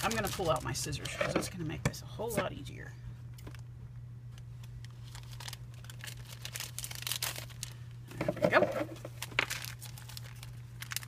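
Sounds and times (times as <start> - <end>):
plastic bag crinkling: 0.0 - 1.6, 4.6 - 11.0.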